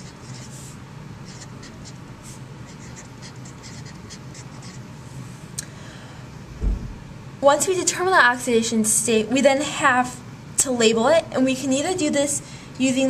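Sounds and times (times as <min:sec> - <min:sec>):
marker scratching on paper: 0:00.0 - 0:04.9.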